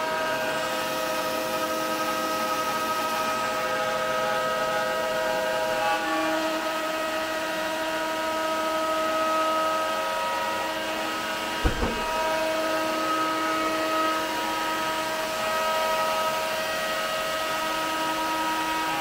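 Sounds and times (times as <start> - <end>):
cnc router spindle whining: 0.0 - 19.0
low thump: 11.6 - 12.4.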